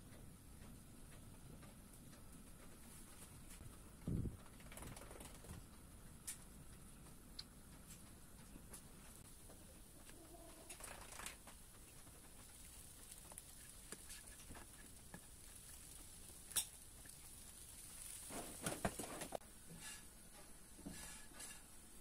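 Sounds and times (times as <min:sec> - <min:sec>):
spatula scraping a pan: 0:17.1 - 0:20.1, 0:20.9 - 0:21.7.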